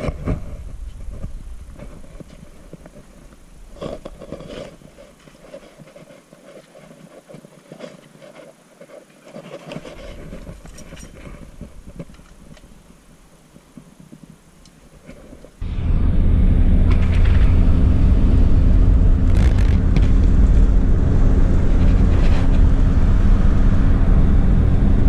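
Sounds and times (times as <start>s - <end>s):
low rumble: 0.0s - 4.5s, 15.6s - 25.0s
gear knocking and clicking: 19.2s - 20.7s.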